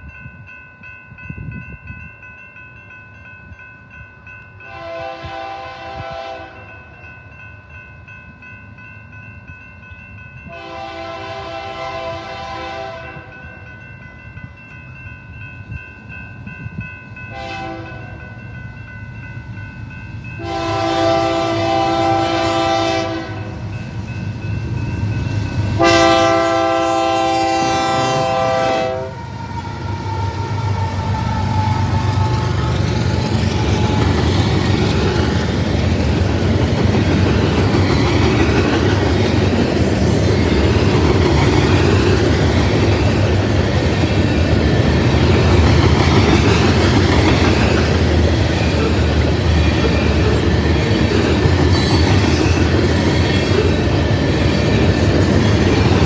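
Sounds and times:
crossing signal bell ringing: 0.0s - 56.0s
locomotive air horn blasts: 4.7s - 6.7s, 10.5s - 13.4s, 17.3s - 18.0s, 20.4s - 23.6s, 25.8s - 29.4s.

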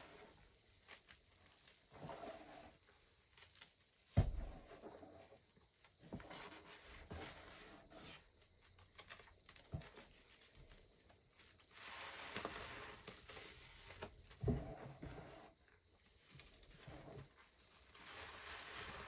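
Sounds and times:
dull thump: 4.1s - 4.8s.

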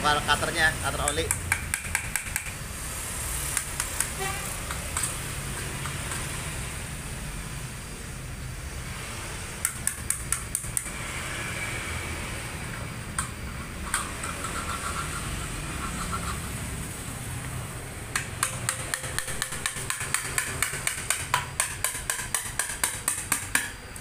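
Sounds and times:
metallic taps of hand tools: 1.0s - 2.5s
steady low hum: 6.5s - 19.8s.

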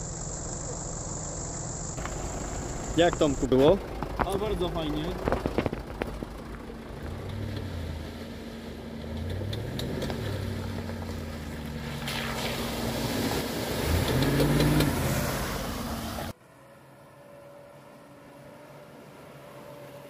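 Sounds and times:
vehicle engine revving under load: 1.6s - 16.3s.

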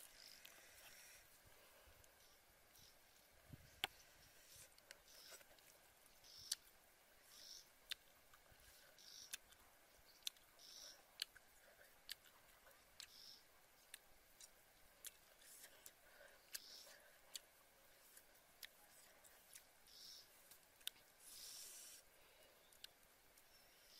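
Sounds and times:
soft mouth hisses: 21.2s - 22.1s.

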